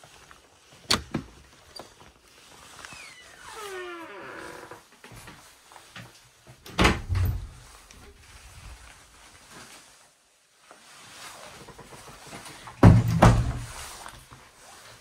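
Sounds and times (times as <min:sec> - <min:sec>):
faint rustling: 0:00.0 - 0:15.0
wooden door knocks and thuds: 0:06.7 - 0:07.6, 0:12.8 - 0:13.8.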